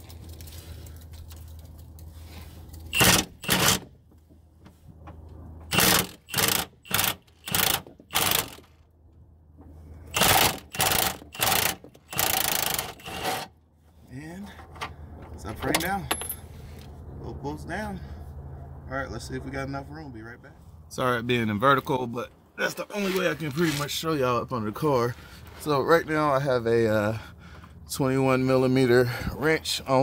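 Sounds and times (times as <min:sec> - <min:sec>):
impact wrench hammering: 0:03.0 - 0:03.8, 0:05.7 - 0:08.6, 0:10.1 - 0:13.3.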